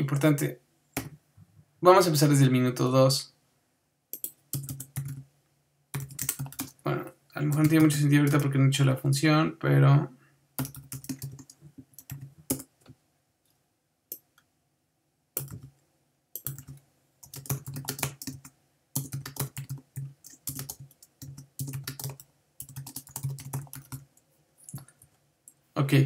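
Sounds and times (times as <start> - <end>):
typing on computer keyboard: 4.2 - 5.2, 5.9 - 6.8, 7.5 - 8.5, 10.6 - 12.7, 15.4 - 15.7, 16.4 - 25.1.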